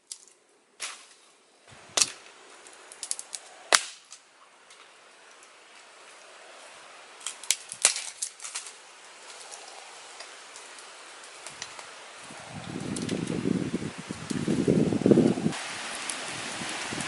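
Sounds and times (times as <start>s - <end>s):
dry sticks cracking and clicking: 0.0s - 1.3s, 2.0s - 13.4s
faint steady hiss: 0.0s - 17.0s.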